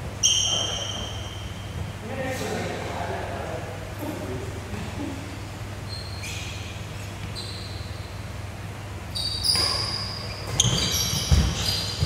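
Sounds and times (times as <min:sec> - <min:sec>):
shoes squeaking on wooden floor: 0:00.2 - 0:02.0, 0:05.9 - 0:08.2, 0:09.1 - 0:12.0.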